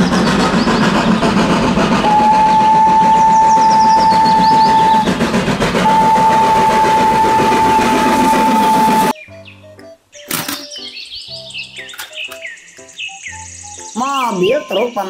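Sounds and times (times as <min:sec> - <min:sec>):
steam locomotive running: 0:00.0 - 0:09.2
steam whistle blasts: 0:00.0 - 0:09.2.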